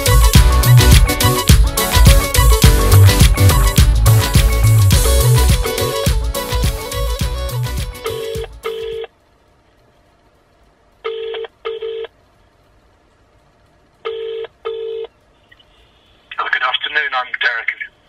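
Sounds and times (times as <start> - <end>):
telephone ringback tone: 8.0 - 9.1, 11.1 - 12.1, 14.1 - 15.1.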